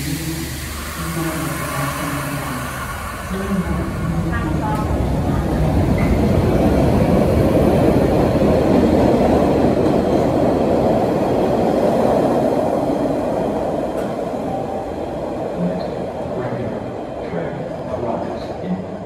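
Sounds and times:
subway train rumbling past: 0.0s - 19.0s.

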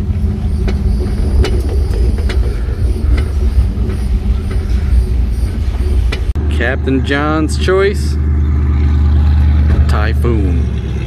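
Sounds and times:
knocks and rattles: 0.0s - 6.4s, 9.4s - 10.0s
trailer rumbling over pavement: 0.0s - 11.0s.

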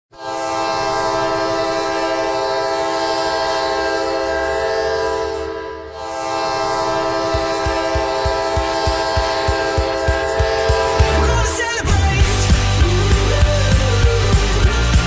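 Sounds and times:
arena goal horn blasting: 0.1s - 11.9s
thumping drum beat: 7.2s - 15.0s.

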